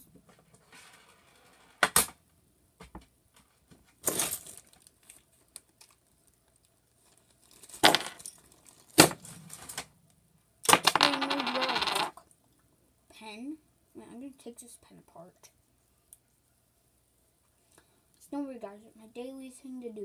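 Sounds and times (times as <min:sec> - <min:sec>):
plastic bag crinkling: 0:04.2 - 0:09.7.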